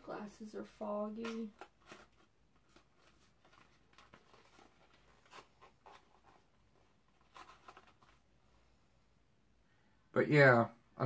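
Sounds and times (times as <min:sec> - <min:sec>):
soft clicks and rustles: 0:01.2 - 0:08.3.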